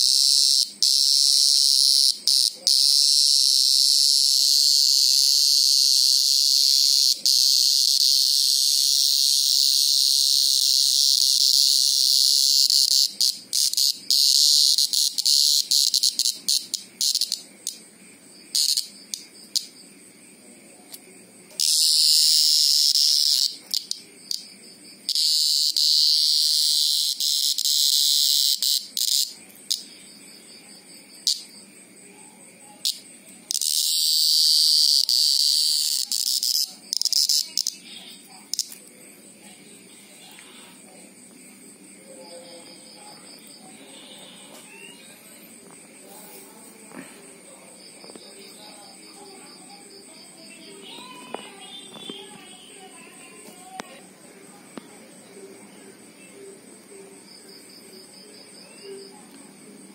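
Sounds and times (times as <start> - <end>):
cicada buzzing call: 0.0 - 19.8, 21.6 - 30.4, 32.8 - 38.8.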